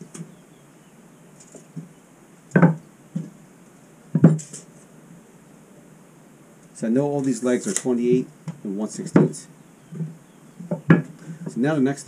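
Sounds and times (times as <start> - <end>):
wooden legs knocking on workbench: 2.6 - 3.4, 4.2 - 4.5, 9.2 - 11.1.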